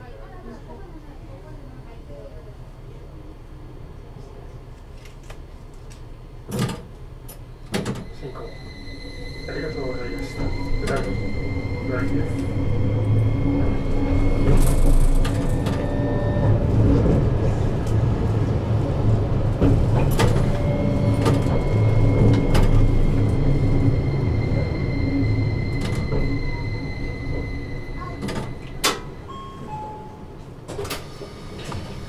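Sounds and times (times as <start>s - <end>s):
tram wheels rumbling: 6.2s - 32.0s
thin whine: 8.0s - 17.0s.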